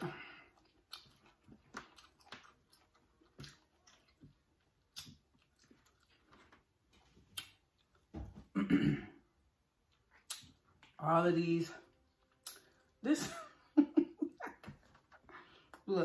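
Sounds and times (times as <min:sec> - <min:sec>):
wet chewing clicks and smacks: 0:00.5 - 0:06.6, 0:07.2 - 0:08.1, 0:09.8 - 0:11.0, 0:12.0 - 0:12.9
person speaking: 0:10.9 - 0:12.0, 0:13.0 - 0:13.6, 0:15.8 - 0:16.0.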